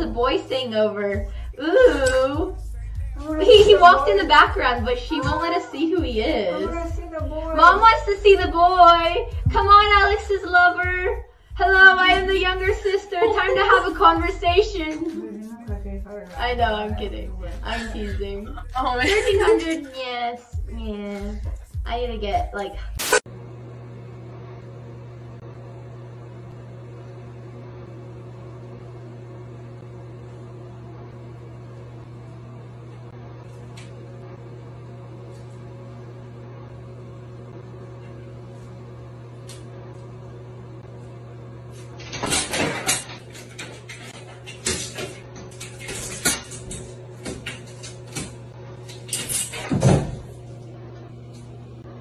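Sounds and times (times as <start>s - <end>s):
steady low hum: 0.0s - 52.0s
cat falling into bathtub: 42.1s - 43.2s.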